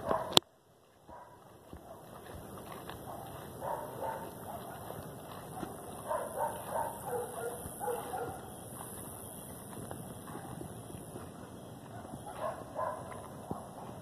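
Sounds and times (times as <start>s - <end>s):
dog barking: 0.0s - 0.4s, 1.1s - 2.3s, 3.0s - 8.5s, 10.3s - 10.7s, 11.9s - 14.0s.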